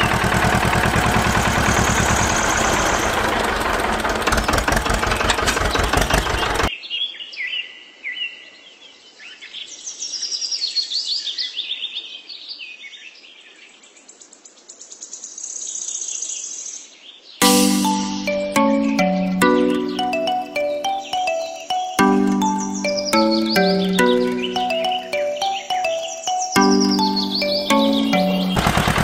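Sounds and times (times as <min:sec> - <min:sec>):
engine running: 0:00.0 - 0:06.7, 0:28.1 - 0:29.0
birds chirping: 0:17.6 - 0:28.7.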